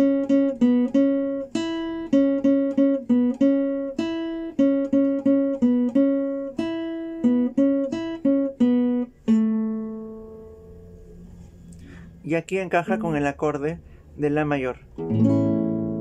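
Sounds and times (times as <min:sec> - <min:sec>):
classical guitar melody: 0:00.0 - 0:12.0, 0:14.9 - 0:16.0.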